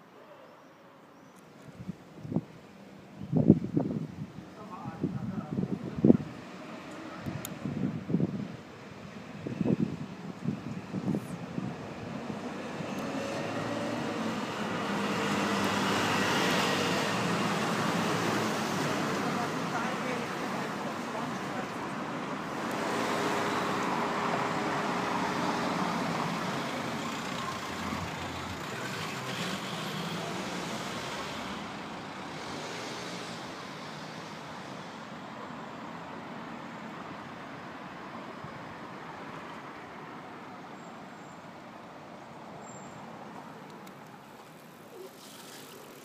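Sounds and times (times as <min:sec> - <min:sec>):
steady traffic noise: 0:00.0 - 0:46.0.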